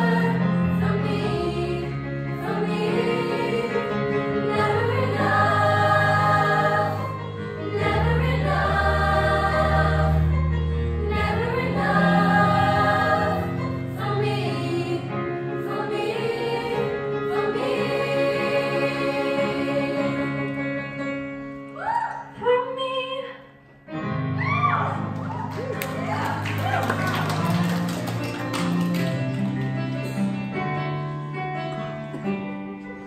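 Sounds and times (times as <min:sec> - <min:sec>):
choir singing in harmony: 0:00.0 - 0:21.6.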